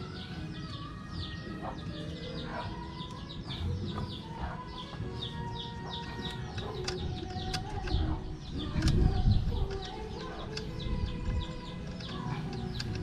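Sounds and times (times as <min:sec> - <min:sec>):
small birds chirping: 0:00.0 - 0:13.0
sharp clicks: 0:05.9 - 0:13.0.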